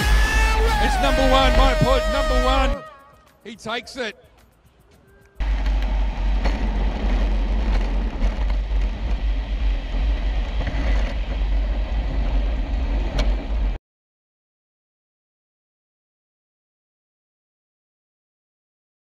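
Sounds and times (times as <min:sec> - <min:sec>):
wind buffeting and road noise: 0:05.4 - 0:13.8.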